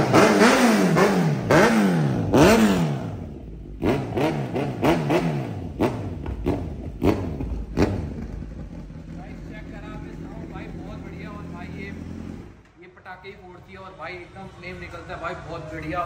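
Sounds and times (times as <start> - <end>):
motorcycle engine revving: 0.0 - 12.6.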